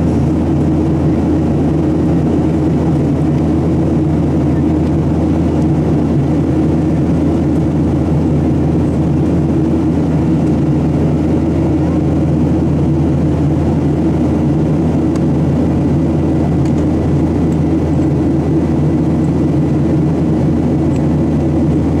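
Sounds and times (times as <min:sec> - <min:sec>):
jet engine drone: 0:00.0 - 0:22.0.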